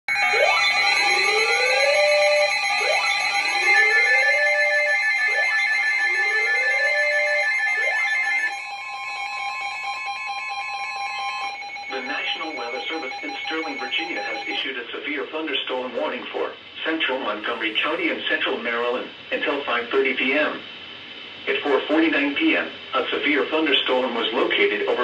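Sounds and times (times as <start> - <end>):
whooping siren: 0.1 - 14.6
steady beeping alarm tones: 0.1 - 14.7.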